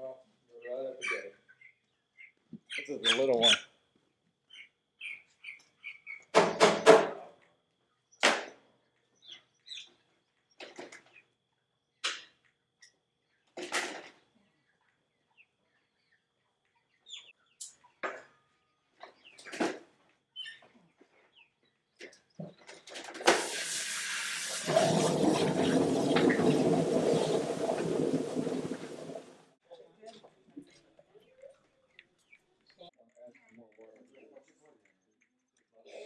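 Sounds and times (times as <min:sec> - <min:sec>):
bird chirps and calls: 0:00.6 - 0:03.8, 0:04.5 - 0:06.3, 0:20.4 - 0:20.7.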